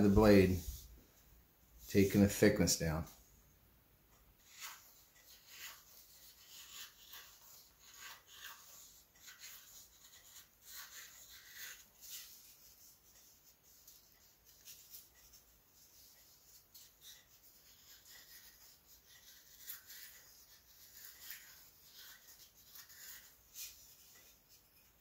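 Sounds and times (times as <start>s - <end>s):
knife scraping wood: 4.4s - 13.0s, 13.8s - 25.0s.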